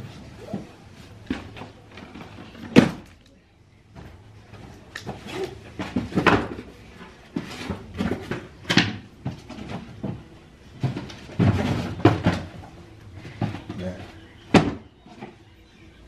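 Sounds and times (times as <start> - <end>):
knocks and bumps of clutter: 3.9 - 15.5.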